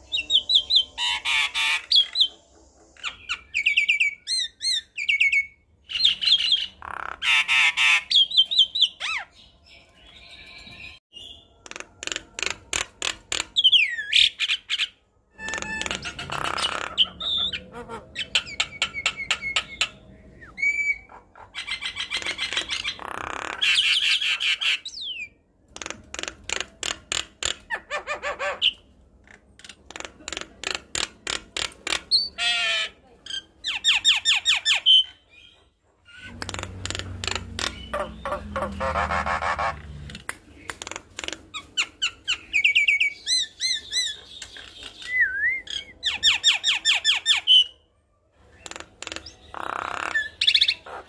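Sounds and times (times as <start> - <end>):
myna bird singing: 0.0 - 29.8, 30.7 - 51.0.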